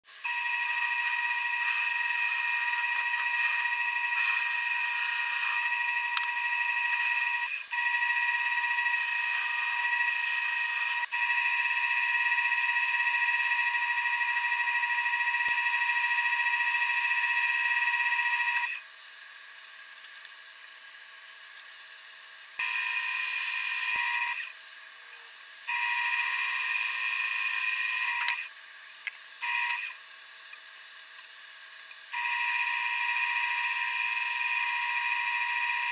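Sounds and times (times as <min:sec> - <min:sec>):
wood lathe cutting whine: 0:00.2 - 0:18.6.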